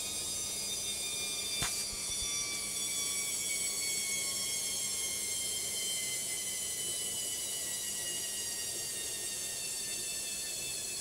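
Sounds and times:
washing machine spinning: 0:00.0 - 0:11.0.

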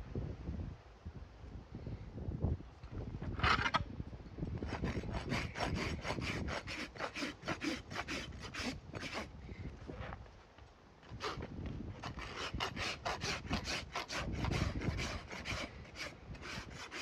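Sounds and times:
rasp filing hoof: 0:04.6 - 0:09.3, 0:11.1 - 0:17.0.

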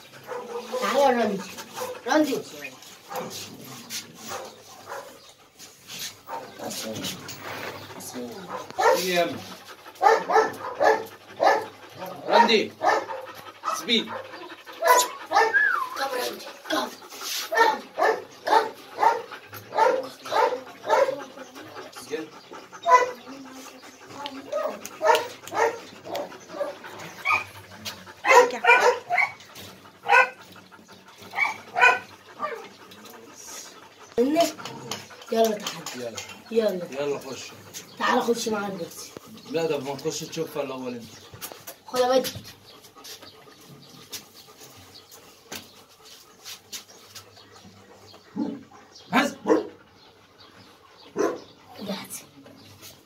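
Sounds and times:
dog barking: 0:00.3 - 0:01.1, 0:03.1 - 0:03.4, 0:04.3 - 0:05.2, 0:08.5 - 0:09.1, 0:10.0 - 0:14.2, 0:14.8 - 0:15.8, 0:17.5 - 0:21.2, 0:22.9 - 0:23.2, 0:24.5 - 0:27.5, 0:28.2 - 0:29.4, 0:30.0 - 0:30.4, 0:31.3 - 0:32.6, 0:48.4 - 0:49.8, 0:51.1 - 0:51.4
rustling: 0:00.4 - 0:10.8.

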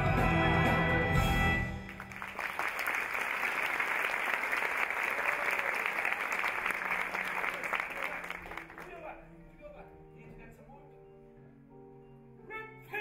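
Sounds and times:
audience applauding: 0:01.6 - 0:09.1.

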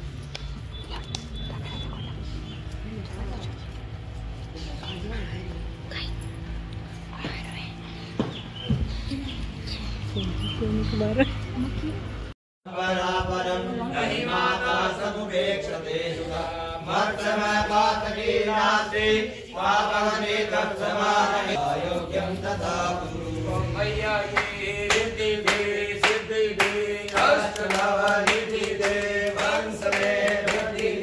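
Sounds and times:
rhythmic claps or percussion: 0:00.0 - 0:01.7, 0:20.9 - 0:31.0
voices chanting a devotional song: 0:12.7 - 0:31.0
steady low drone: 0:15.8 - 0:31.0.

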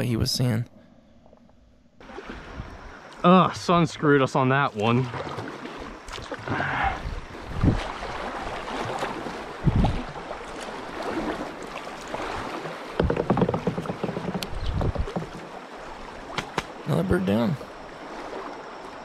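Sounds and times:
river water rushing and splashing: 0:04.7 - 0:19.0.

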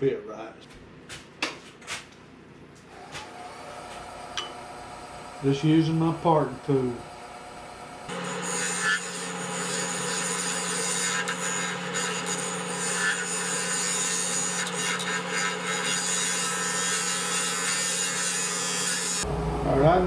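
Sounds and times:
wood lathe motor hum: 0:02.9 - 0:19.3
tool scraping spinning wood: 0:08.1 - 0:19.3.

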